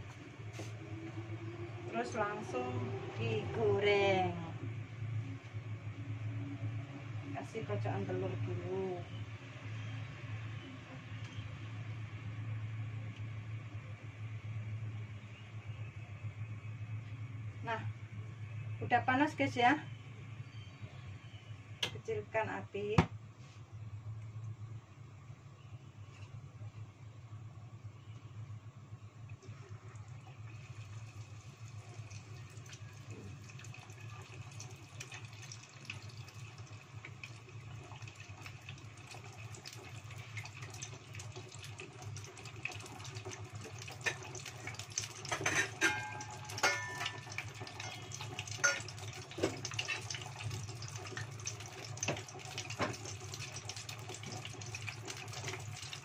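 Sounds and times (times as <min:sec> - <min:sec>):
oil crackling and popping: 0:30.3 - 0:56.0
food sizzling in hot oil: 0:30.4 - 0:56.0.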